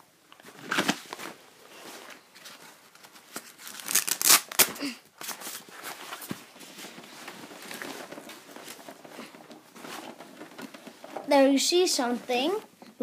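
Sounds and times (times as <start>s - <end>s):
bag rustling and scraping: 5.3s - 12.7s.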